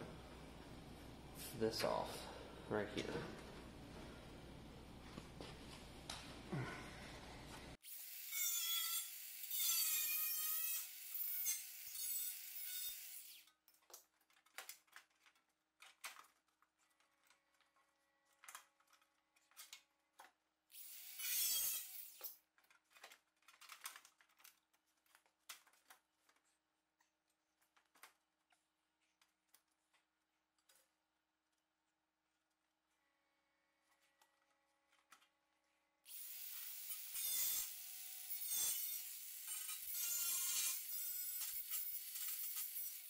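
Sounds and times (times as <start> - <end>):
saw cutting sheet metal: 7.8 - 13.5, 20.8 - 22.4, 36.1 - 43.0.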